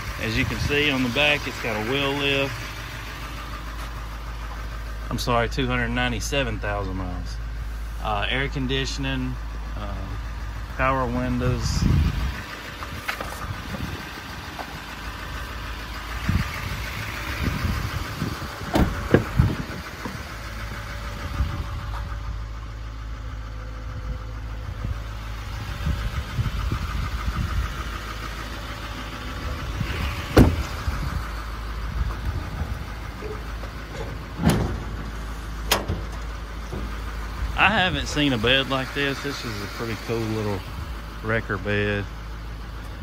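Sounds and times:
diesel engine idling: 0.0s - 43.0s
doors and lids thumping: 30.3s - 30.8s, 33.2s - 37.0s.

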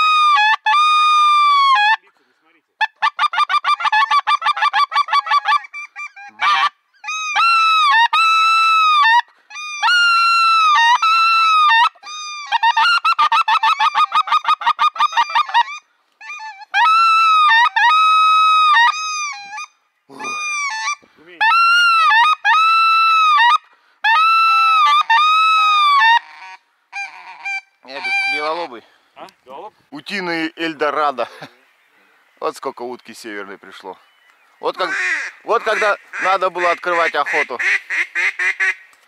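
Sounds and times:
geese honking: 2.8s - 28.9s, 34.6s - 38.9s.

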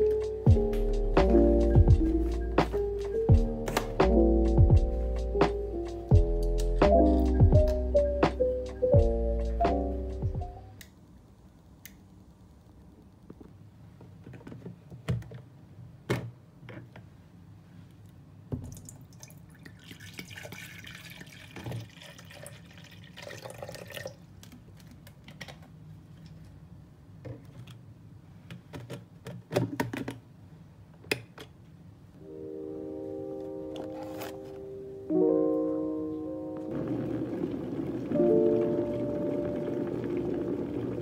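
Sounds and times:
water pouring into kettle: 18.8s - 24.2s, 36.7s - 41.0s.

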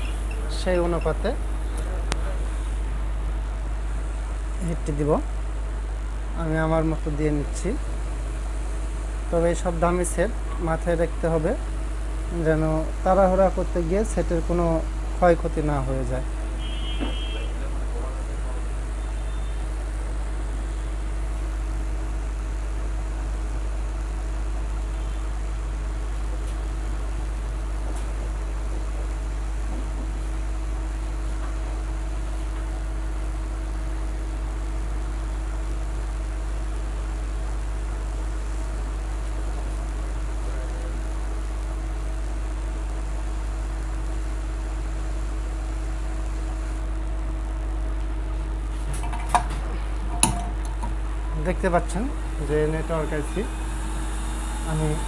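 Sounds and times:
low hum: 48.4s - 55.0s
hot air gun blowing: 52.1s - 55.0s.

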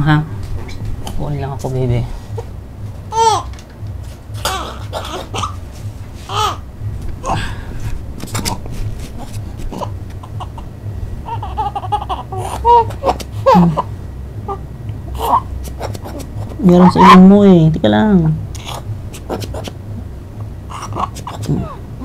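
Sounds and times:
baby crying: 3.1s - 3.6s, 4.3s - 5.6s, 6.2s - 7.6s, 9.2s - 17.2s, 20.7s - 21.8s.

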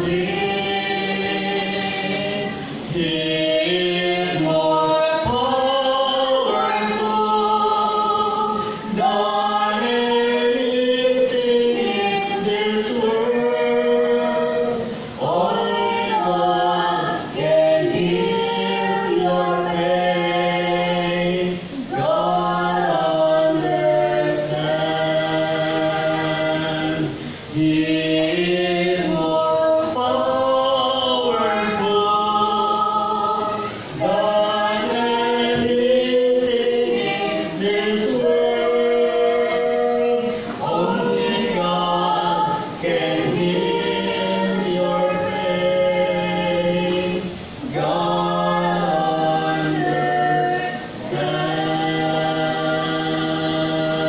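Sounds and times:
group singing a hymn in harmony: 0.0s - 54.0s
singers breathing: 14.9s - 15.2s, 27.1s - 27.5s.

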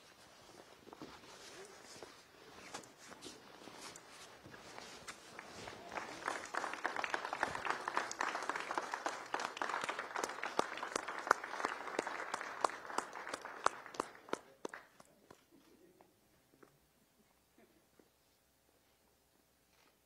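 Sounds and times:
crowd clapping: 5.2s - 15.5s.

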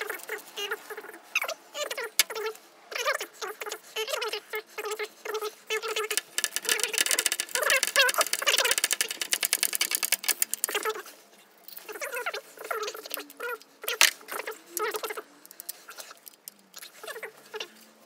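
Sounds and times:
socket ratchet clicking: 6.0s - 10.8s.

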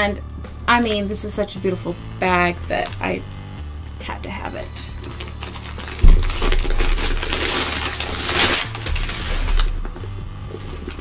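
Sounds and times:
plastic and paper rustling: 5.0s - 11.0s
thump: 6.0s - 6.3s.

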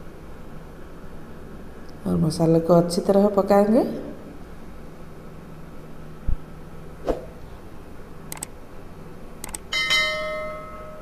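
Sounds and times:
mouse clicks: 8.3s - 8.5s, 9.4s - 9.6s
bell chime: 9.7s - 11.0s.

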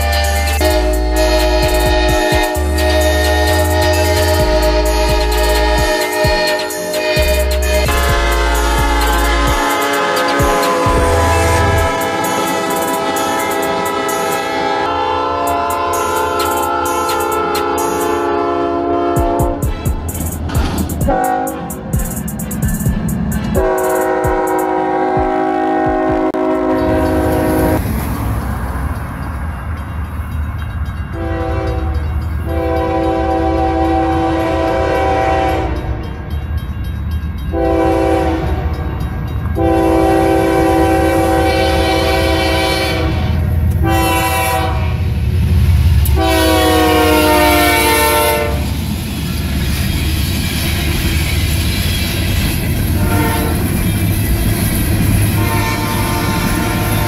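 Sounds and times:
locomotive air horn blasts: 0.0s - 22.0s, 23.5s - 27.8s, 31.1s - 36.0s, 37.5s - 39.0s, 39.6s - 45.2s, 46.0s - 48.8s, 52.9s - 53.8s, 55.2s - 57.0s
train rumbling: 0.0s - 57.0s.

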